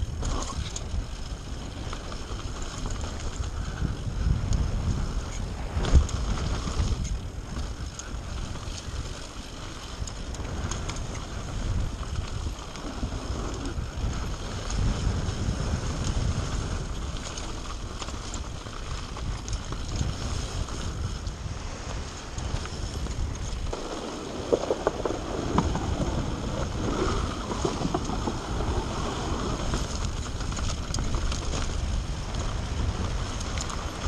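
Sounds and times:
bike rattling clicks: 0:00.0 - 0:34.0
wind rushing over microphone: 0:00.0 - 0:34.0
tyre rumble on gravel: 0:11.5 - 0:34.0.

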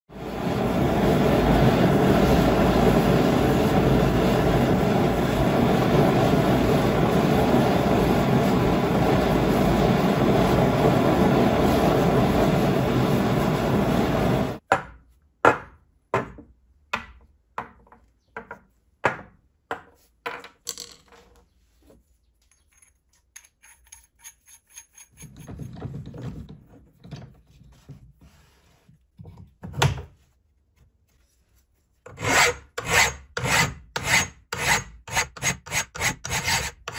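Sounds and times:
gas burner roaring: 0:00.1 - 0:14.6.

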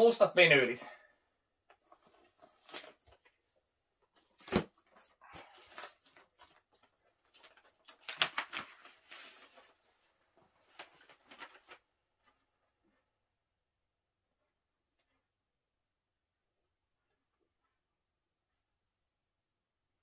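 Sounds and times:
record sleeve rustling and scraping: 0:01.7 - 0:03.4.

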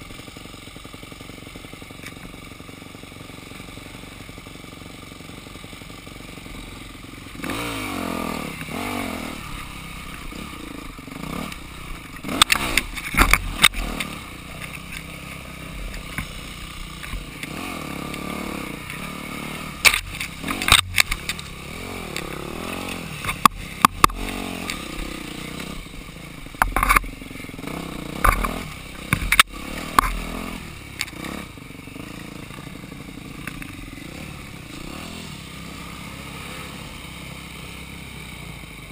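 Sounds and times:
dirt bike engine revving: 0:00.0 - 0:38.9
sharp knocks and clatter: 0:11.4 - 0:15.1, 0:19.8 - 0:24.8, 0:26.6 - 0:27.1, 0:28.1 - 0:30.4.

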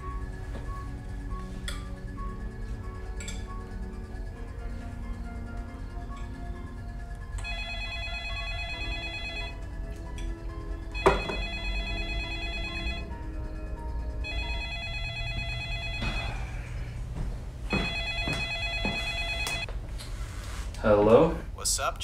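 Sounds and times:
low background music: 0:00.0 - 0:22.0
electronic telephone ringing: 0:07.4 - 0:09.7, 0:11.0 - 0:13.2, 0:14.2 - 0:16.6, 0:17.7 - 0:19.7.

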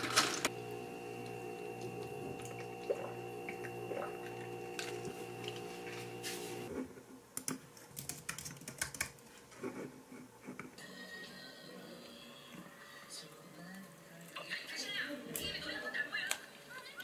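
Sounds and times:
steady multi-tone hum: 0:00.4 - 0:07.0
keyboard typing: 0:07.4 - 0:09.2.

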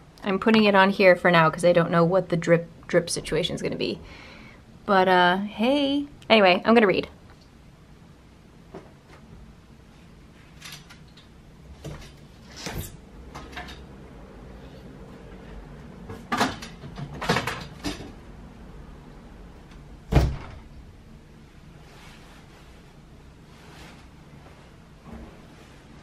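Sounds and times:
heavy thump: 0:20.1 - 0:20.7
door opening and shutting: 0:20.1 - 0:20.8.

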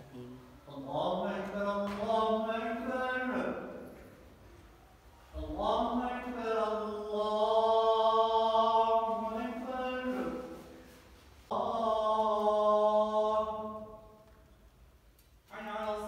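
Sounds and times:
man chanting prayer: 0:00.0 - 0:03.9, 0:05.3 - 0:10.7, 0:15.5 - 0:16.0.

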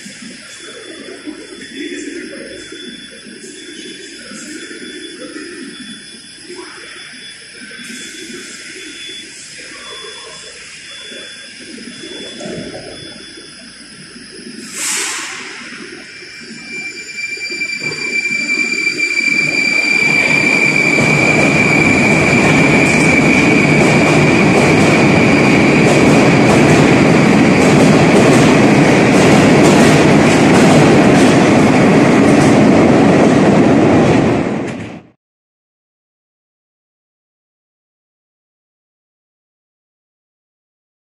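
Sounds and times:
high whine: 0:00.0 - 0:35.2
train wheels running: 0:16.9 - 0:35.1.

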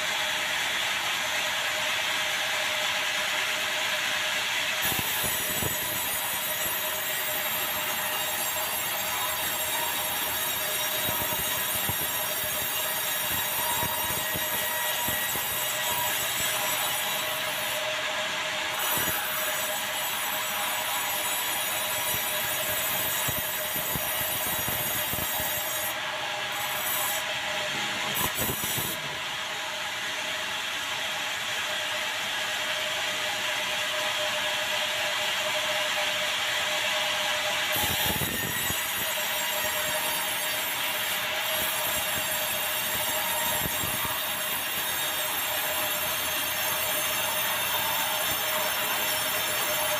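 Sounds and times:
saw cutting timber: 0:04.8 - 0:29.8, 0:37.4 - 0:49.9.

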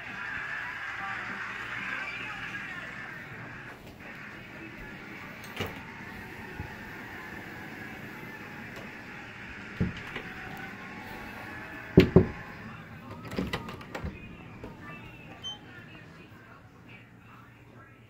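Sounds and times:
closet door opening and shutting: 0:03.3 - 0:16.7.

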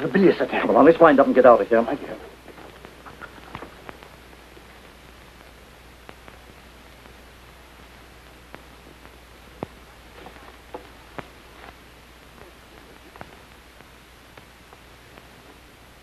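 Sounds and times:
film soundtrack hiss and hum: 0:00.0 - 0:16.0
faint sharp clicks: 0:02.7 - 0:07.2, 0:07.8 - 0:15.6.

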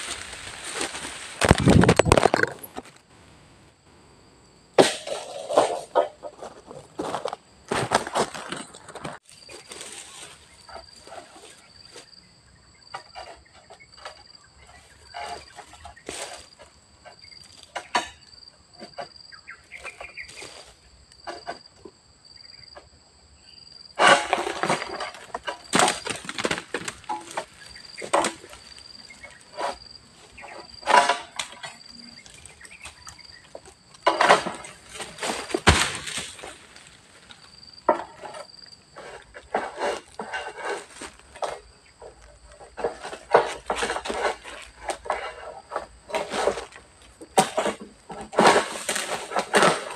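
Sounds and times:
leaves and branches rustling: 0:00.0 - 0:03.5, 0:05.2 - 0:12.4, 0:19.4 - 0:21.5, 0:24.0 - 0:49.9
insects buzzing: 0:00.0 - 0:49.9.

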